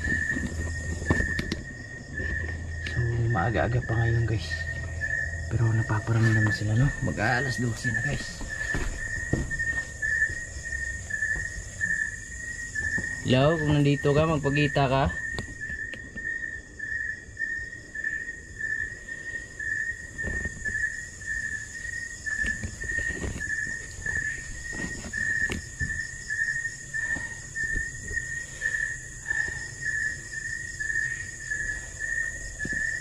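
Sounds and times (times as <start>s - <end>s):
insect chirping: 0.0s - 33.0s
steady high-pitched buzz: 0.0s - 33.0s
soft knocks: 8.2s - 10.5s.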